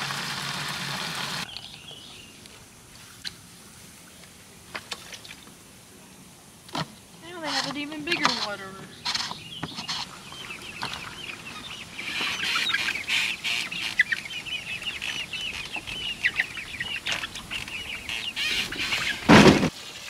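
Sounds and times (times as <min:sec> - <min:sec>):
chicks peeping: 0:10.3 - 0:19.3
loud thump: 0:19.3 - 0:19.7.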